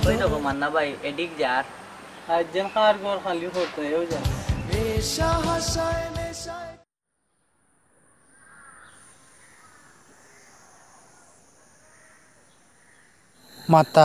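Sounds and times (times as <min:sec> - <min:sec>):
background song: 0:00.0 - 0:00.6, 0:04.1 - 0:06.9
crows cawing: 0:08.2 - 0:13.6.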